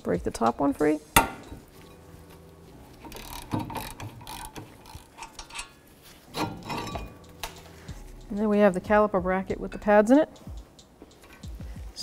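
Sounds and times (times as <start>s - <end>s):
socket ratchet clicking: 3.0s - 5.8s, 6.4s - 7.8s.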